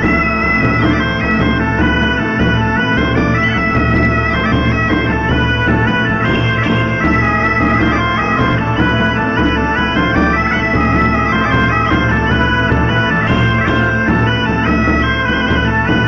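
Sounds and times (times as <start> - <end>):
bagpipe melody over drone: 0.0 - 16.0.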